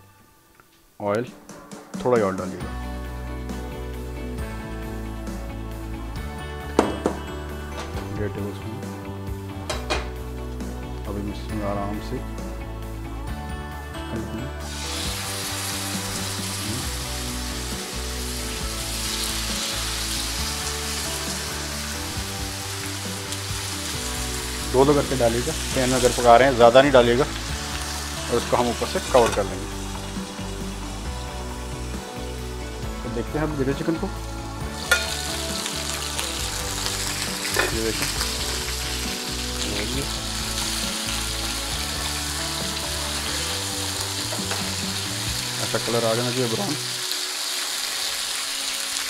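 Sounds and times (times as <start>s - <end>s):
chicken sizzling in hot oil: 14.6s - 49.0s.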